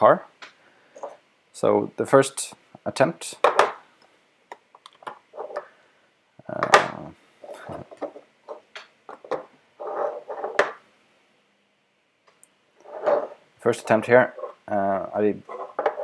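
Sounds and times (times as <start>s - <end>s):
clattering scrape: 5.3s - 5.7s, 9.2s - 10.8s, 12.8s - 14.6s, 15.4s - 16.0s.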